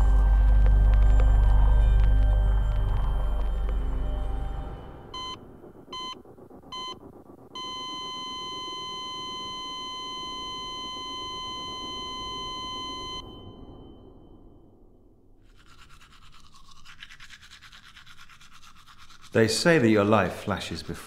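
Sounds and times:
heart monitor beeping: 0:00.0 - 0:14.7
heart monitor flatline tone: 0:00.0 - 0:15.1.

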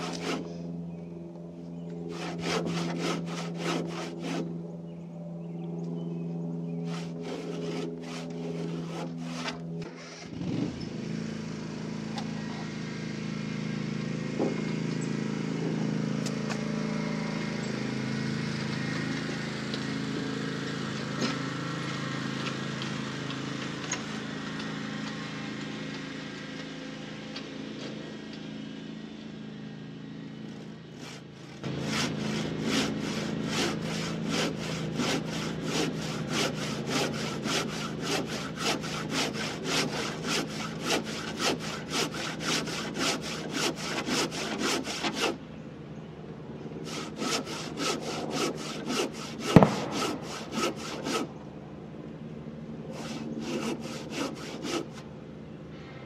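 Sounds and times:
hand saw cutting wood: 0:00.0 - 0:00.8, 0:02.0 - 0:04.6, 0:06.8 - 0:11.3, 0:14.1 - 0:28.1, 0:30.5 - 0:45.4, 0:46.8 - 0:51.4, 0:52.8 - 0:55.1
riding lawn mower engine: 0:00.0 - 0:56.0.

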